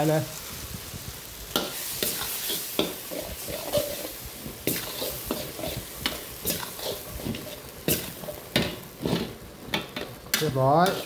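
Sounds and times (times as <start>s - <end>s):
food sizzling: 0.0s - 11.0s
spatula clanking against pan: 1.5s - 4.0s, 7.9s - 11.0s
metal spatula scraping wok: 1.5s - 11.0s.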